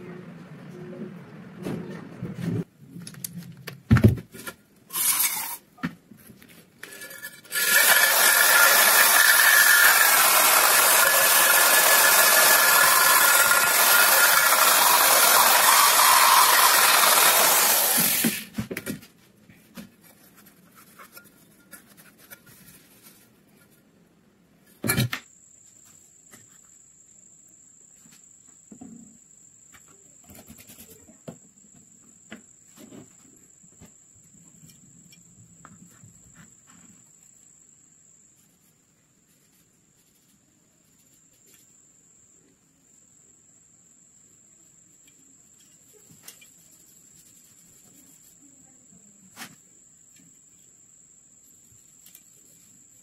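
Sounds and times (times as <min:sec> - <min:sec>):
wire brush scrubbing metal: 0:04.9 - 0:05.6, 0:06.9 - 0:18.4.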